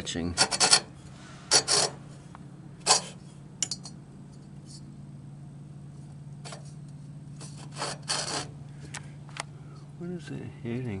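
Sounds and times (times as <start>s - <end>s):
steady low hum: 0.0s - 11.0s
belt scraping on pulley: 0.4s - 3.4s, 6.4s - 8.6s.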